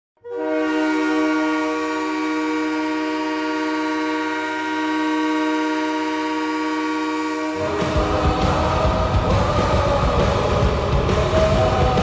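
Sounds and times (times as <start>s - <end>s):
arena goal horn blast: 0.2s - 9.7s.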